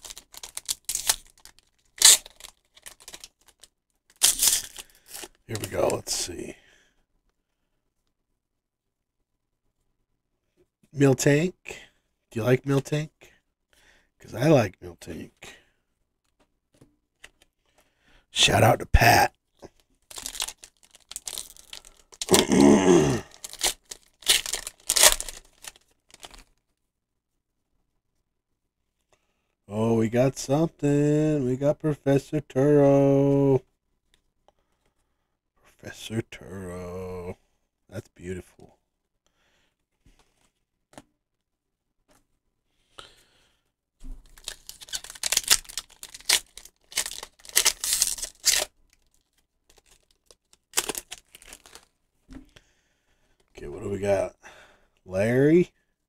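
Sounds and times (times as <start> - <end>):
foil wrapper crinkling and tearing: 0.0 - 6.0, 20.0 - 26.6, 44.2 - 51.9.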